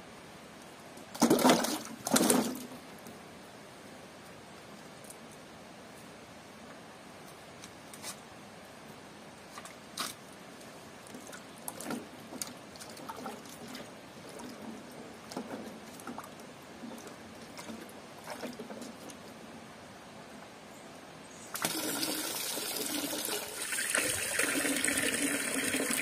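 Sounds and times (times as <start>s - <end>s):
steady background hiss: 0.0s - 26.0s
water splashing: 1.1s - 2.8s, 21.5s - 26.0s.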